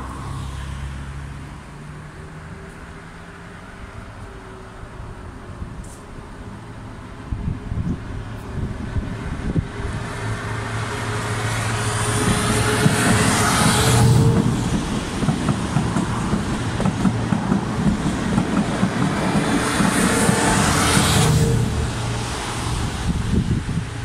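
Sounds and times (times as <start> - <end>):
locomotive diesel engine droning: 1.6 - 24.0
train coaches rumbling over rails: 5.8 - 24.0.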